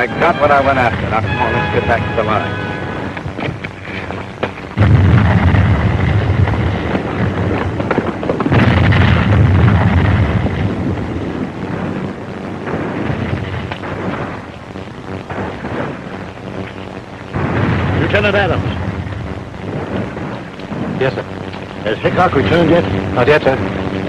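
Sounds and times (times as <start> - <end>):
distant artillery booms: 4.4 - 16.5, 17.3 - 21.6.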